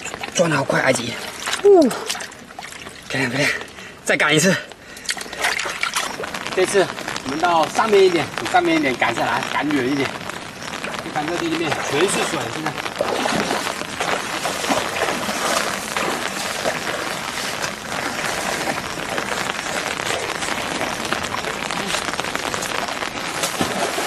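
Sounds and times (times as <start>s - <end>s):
splashing through water: 0.0s - 3.3s, 5.1s - 10.0s, 10.8s - 24.0s
leaves brushing: 11.0s - 24.0s.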